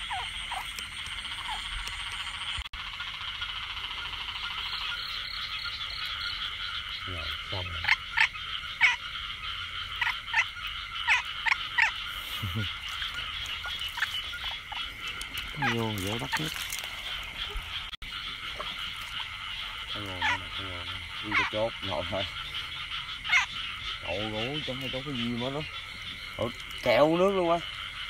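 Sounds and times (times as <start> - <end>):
frogs chorus: 0.0 - 28.0.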